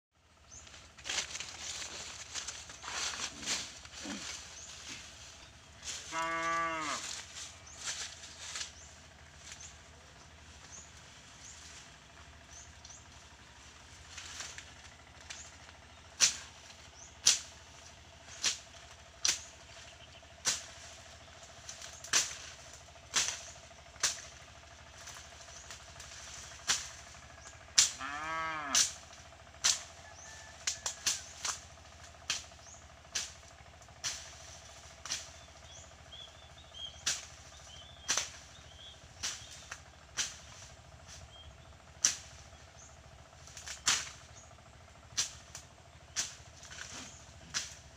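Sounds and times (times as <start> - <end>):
blade swishing through grass: 1.0 - 9.7
cow mooing: 5.8 - 7.2, 27.8 - 29.0.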